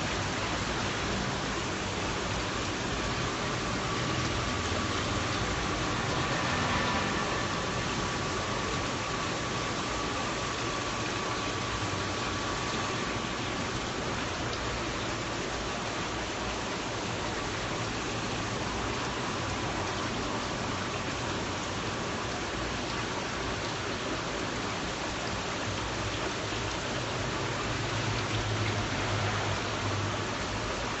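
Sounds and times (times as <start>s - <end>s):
running water rushing: 0.0s - 31.0s.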